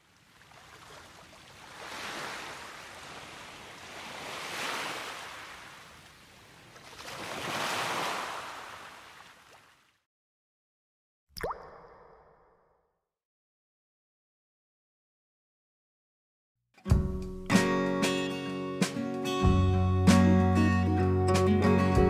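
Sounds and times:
ocean waves washing ashore: 0:00.0 - 0:09.7.

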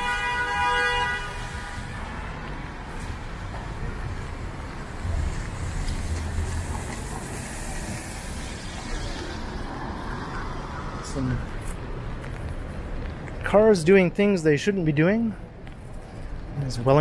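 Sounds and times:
vehicle engine rumbling: 0:02.4 - 0:13.5
tyres hissing on wet road: 0:04.9 - 0:10.9.

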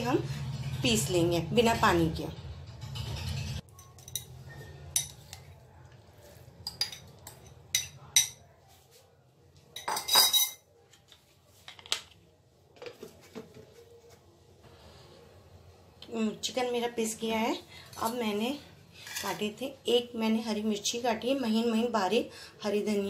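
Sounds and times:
utensil scraping glass and metal: 0:02.6 - 0:05.4.

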